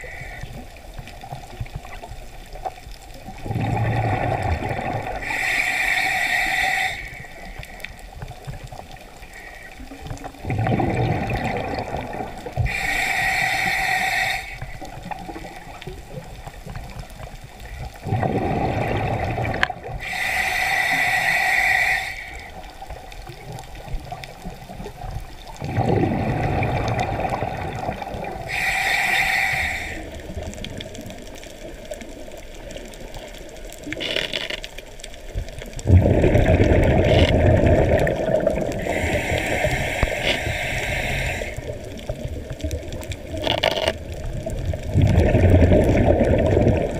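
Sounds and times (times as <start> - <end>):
hissing regulator inhale: 0.0 - 0.8, 4.9 - 8.3, 12.5 - 15.8, 18.5 - 23.0, 28.3 - 30.4, 38.7 - 42.1
exhaled bubbles rumbling: 0.0 - 5.3, 9.8 - 12.8, 14.7 - 20.0, 22.6 - 28.6, 35.1 - 46.9.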